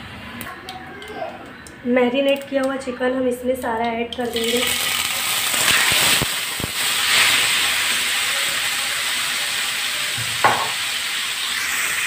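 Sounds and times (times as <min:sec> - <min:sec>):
chicken sizzling in hot oil: 0:04.3 - 0:12.0.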